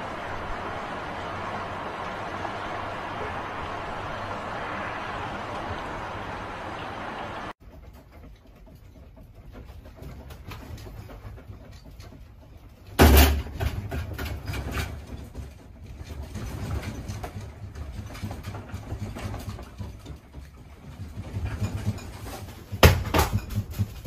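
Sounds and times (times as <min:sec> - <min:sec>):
rattling and clatter: 0:07.6 - 0:24.0
loud knocks: 0:22.7 - 0:24.0.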